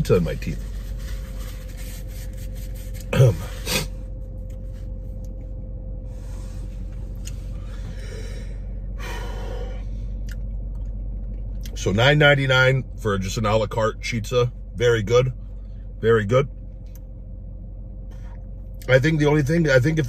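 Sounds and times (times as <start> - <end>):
steady low hum: 0.0 - 20.0
man breathing and sighing: 6.2 - 10.3.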